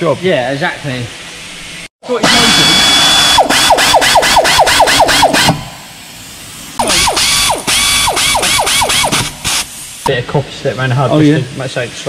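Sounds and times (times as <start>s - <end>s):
air ratchet hissing and rattling: 2.3s - 10.1s.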